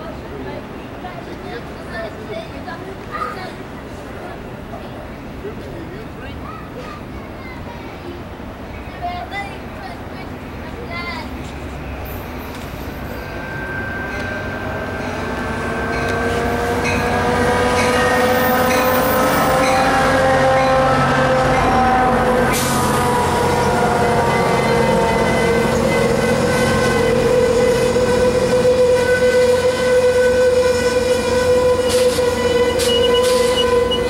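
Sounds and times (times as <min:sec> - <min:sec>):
passenger train rolling past: 0:00.0 - 0:34.0
train cars squealing: 0:10.3 - 0:34.0.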